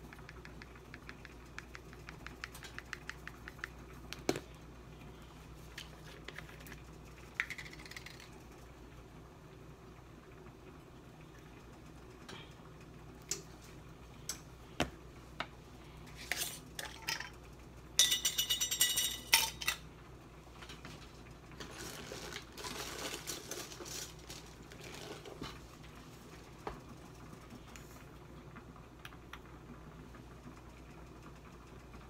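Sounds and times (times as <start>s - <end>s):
seasoning shaken out rustling: 21.6s - 25.4s.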